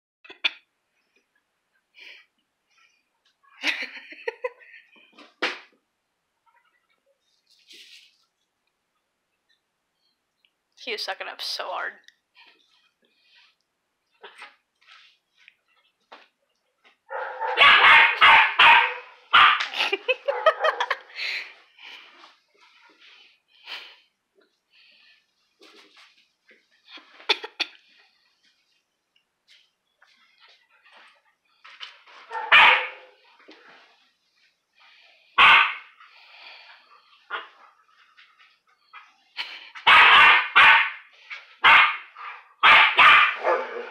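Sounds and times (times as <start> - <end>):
puppy barking: 17.1 - 21.0, 32.3 - 33.2, 35.4 - 35.9, 39.8 - 43.9.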